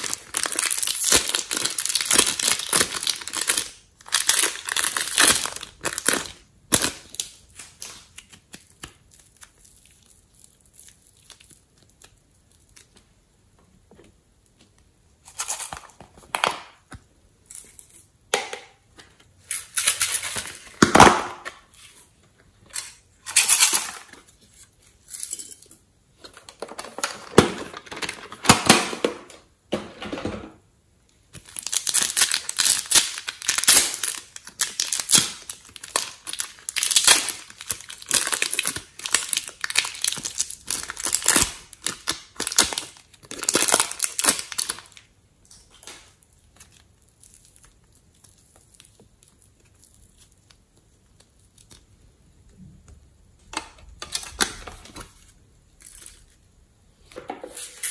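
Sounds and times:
plastic wrapping crinkling and tearing: 0:00.0 - 0:13.1, 0:31.3 - 0:52.0, 0:54.0 - 0:56.5.

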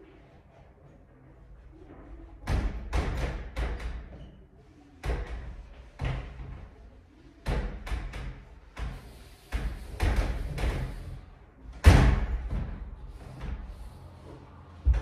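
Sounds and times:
sharp knocks and thuds: 0:11.8 - 0:13.7, 0:14.8 - 0:15.0.

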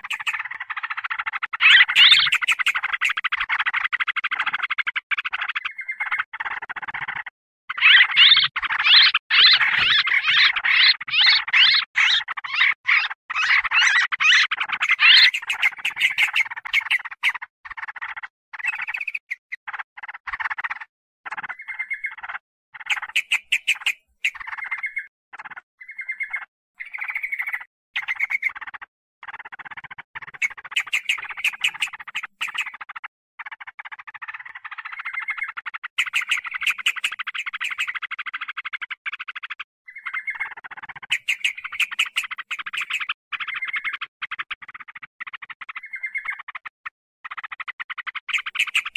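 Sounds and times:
bulbuls chattering noisily: 0:00.0 - 0:04.4, 0:07.7 - 0:17.4, 0:22.8 - 0:25.0, 0:30.2 - 0:32.9, 0:36.0 - 0:38.0, 0:40.0 - 0:43.9, 0:48.3 - 0:48.9.

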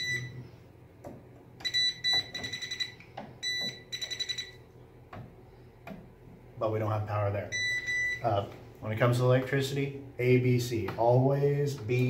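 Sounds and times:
voltage tester beeping: 0:00.0 - 0:00.4, 0:01.6 - 0:04.6, 0:07.5 - 0:08.4.

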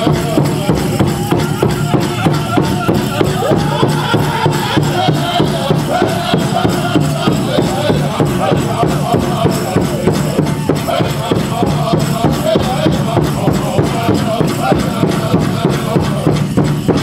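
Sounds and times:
big drum beating fast: 0:00.0 - 0:17.0
men singing in high voices: 0:00.0 - 0:17.0.

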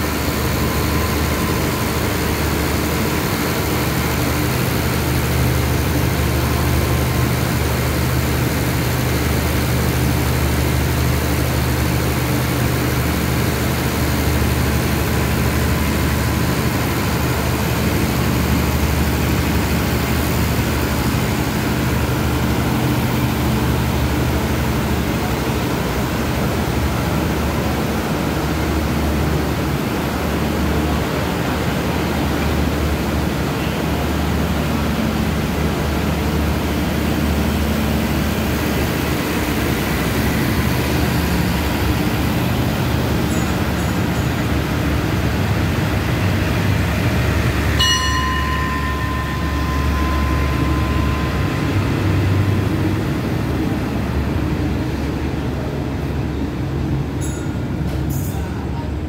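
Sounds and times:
train carriages rumbling past: 0:00.0 - 0:59.0
high steady tone: 0:47.7 - 0:53.8.

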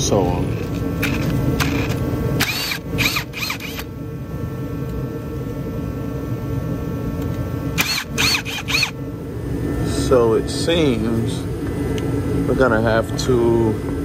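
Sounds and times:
cordless power driver running: 0:00.0 - 0:04.0, 0:07.2 - 0:09.0.

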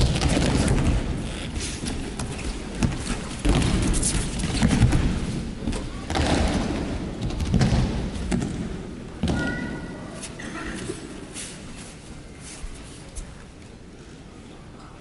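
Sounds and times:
rustle of cloth uniforms: 0:10.1 - 0:13.6.

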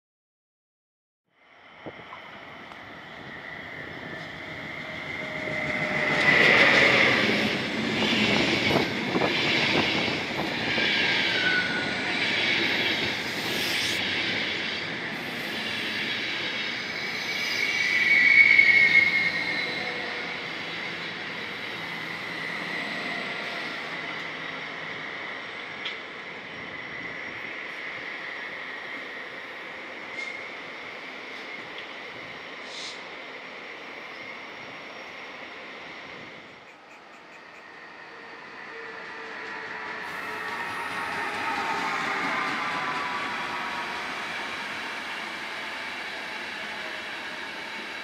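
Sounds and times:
train wheels rumbling on rails: 0:01.9 - 0:27.9, 0:36.2 - 0:48.0
high wheel squeal: 0:03.2 - 0:14.0, 0:15.1 - 0:24.7, 0:36.9 - 0:48.0.

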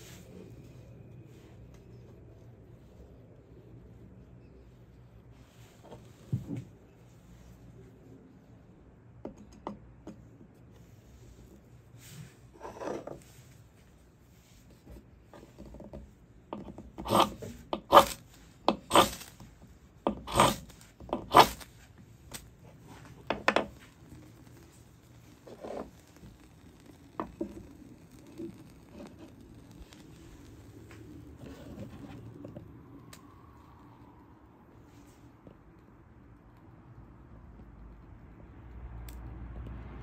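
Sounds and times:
knife scraping ferro rod: 0:12.6 - 0:13.2, 0:16.6 - 0:19.4, 0:20.1 - 0:21.7, 0:25.3 - 0:30.0.

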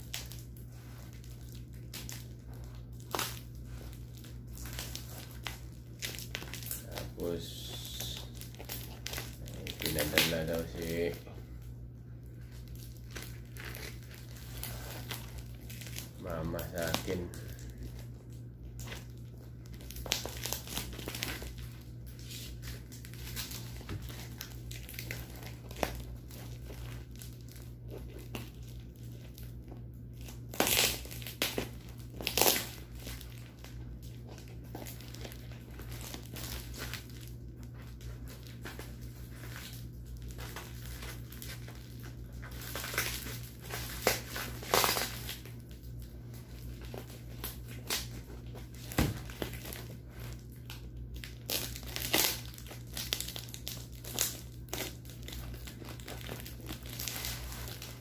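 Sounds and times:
plastic wrap crinkling: 0:00.0 - 0:58.0
packing tape ripping: 0:01.2 - 0:11.2, 0:19.8 - 0:29.4, 0:30.2 - 0:37.3, 0:38.3 - 0:45.7, 0:46.8 - 0:58.0.

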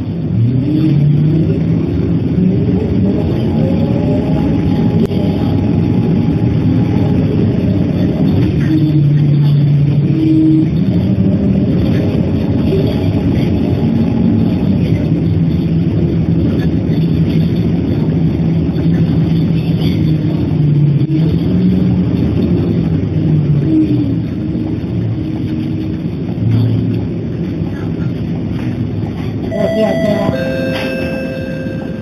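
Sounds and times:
road noise: 0:00.0 - 0:32.0
vehicle engine droning: 0:00.0 - 0:32.0.

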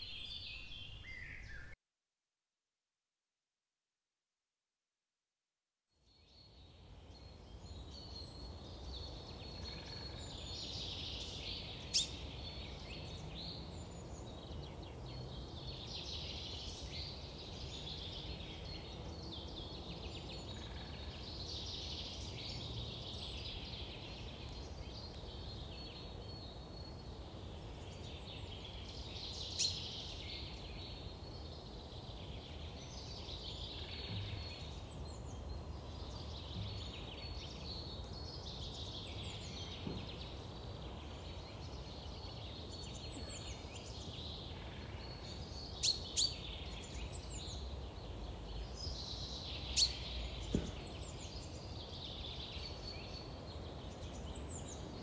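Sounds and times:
birds singing: 0:00.0 - 0:01.8, 0:06.3 - 0:55.0
low background noise: 0:06.1 - 0:55.0.

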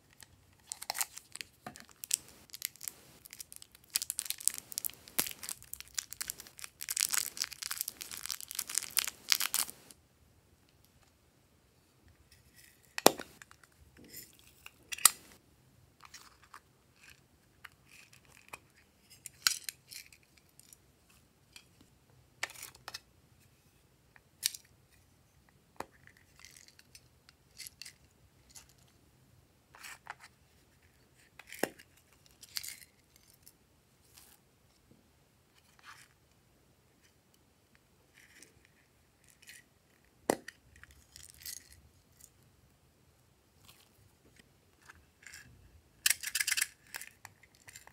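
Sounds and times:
crackly handling noises: 0:00.0 - 0:10.0, 0:12.1 - 0:15.4, 0:43.6 - 0:47.9.

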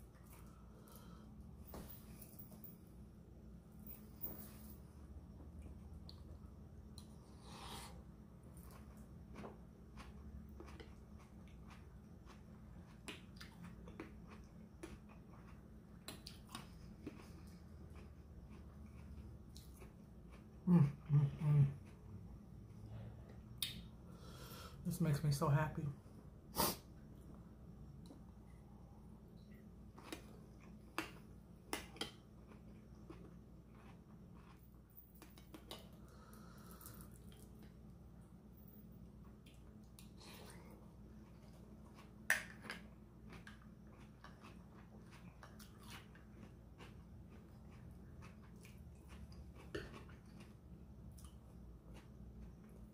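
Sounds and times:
low steady hum: 0:00.0 - 0:52.9
chewing: 0:08.5 - 0:20.6, 0:29.4 - 0:37.8, 0:39.2 - 0:52.9.

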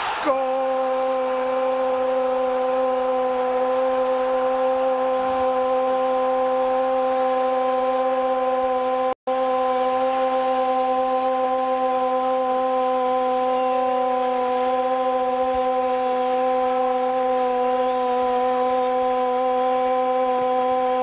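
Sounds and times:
steady horn-like tone: 0:00.0 - 0:21.0.

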